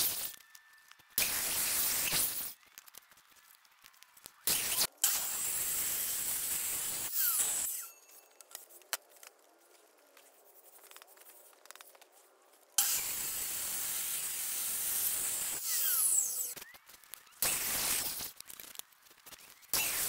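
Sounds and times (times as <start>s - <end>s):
mitre saw cutting wood: 4.6s - 7.9s, 12.8s - 16.6s.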